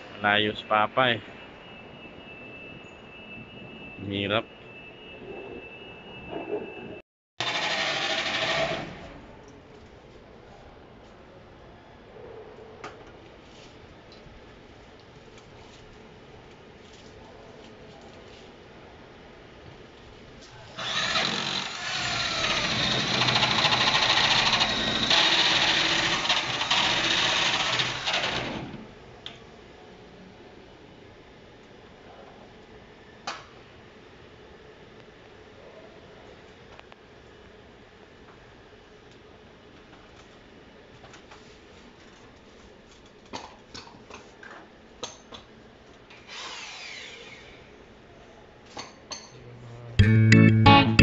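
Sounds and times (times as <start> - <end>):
power drill hole saw grinding: 7.4 - 9.2, 20.8 - 28.8, 46.2 - 47.6.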